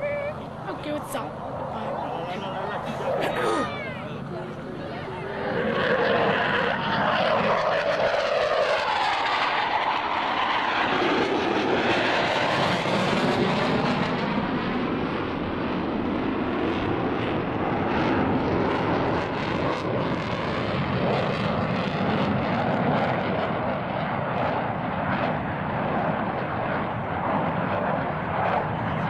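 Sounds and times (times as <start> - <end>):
jet engine rushing: 0.0 - 29.0.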